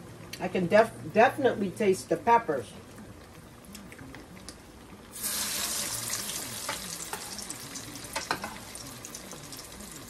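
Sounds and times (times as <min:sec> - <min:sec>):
crackles of frying: 0:02.2 - 0:10.0
hot oil sizzling in a skillet: 0:05.1 - 0:10.0.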